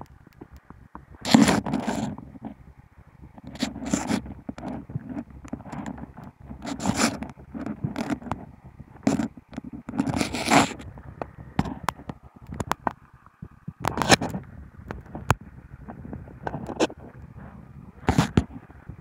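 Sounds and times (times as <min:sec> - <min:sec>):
gloved hand scraping and rustling: 0:00.0 - 0:19.0.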